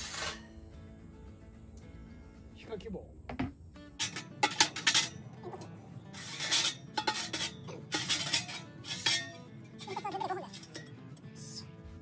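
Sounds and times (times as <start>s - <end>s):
metal scraping against metal: 0.0s - 0.6s, 3.9s - 11.1s
metal pipes clinking: 4.0s - 11.0s.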